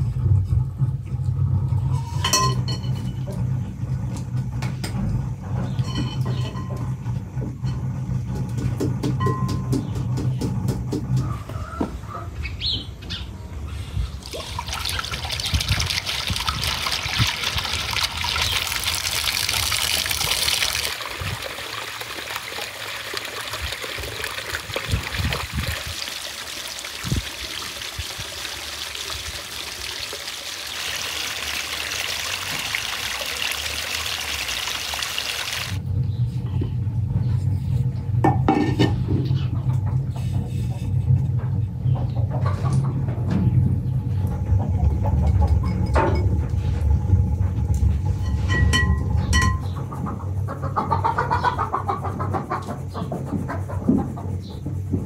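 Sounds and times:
water pouring and splashing: 14.2s - 35.8s.

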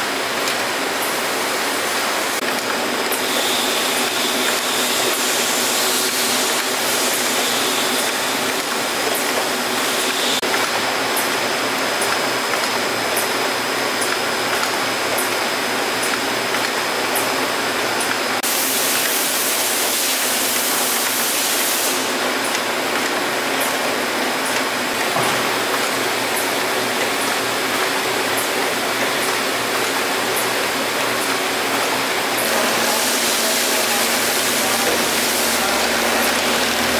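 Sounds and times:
steady machine noise: 0.0s - 36.9s
loud hiss: 32.4s - 36.9s.

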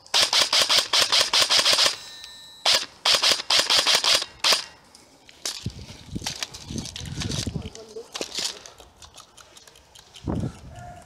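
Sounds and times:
airsoft rifle full-auto bursts: 0.0s - 4.8s.

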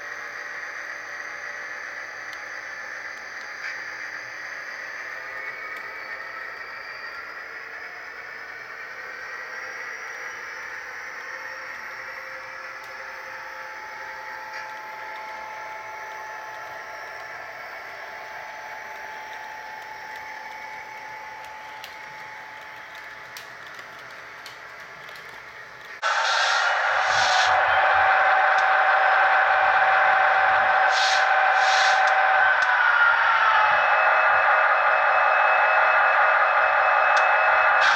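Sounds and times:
faint motor whine: 0.0s - 37.9s
model train wheels whirring on rails: 0.0s - 37.9s.

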